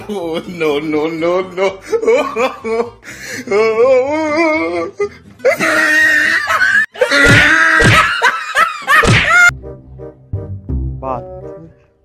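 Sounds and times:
comic music: 9.1 - 12.0.

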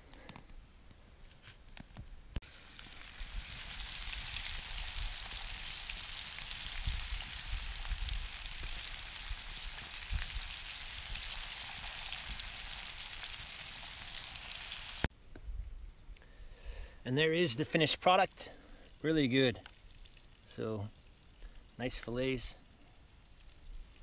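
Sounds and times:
fish sizzling in a frying pan: 2.4 - 15.1.

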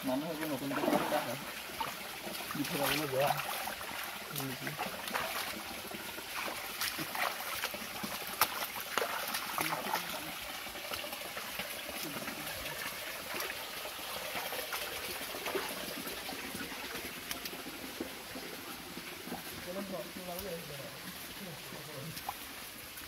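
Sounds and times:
stream trickling over rocks: 0.0 - 23.0
footsteps on wet stones: 0.1 - 13.5, 19.2 - 23.0.

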